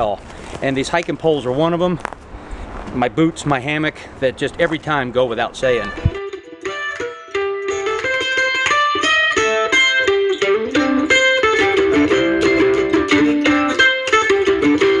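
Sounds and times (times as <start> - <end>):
plucked string instrument music: 5.6 - 15.0.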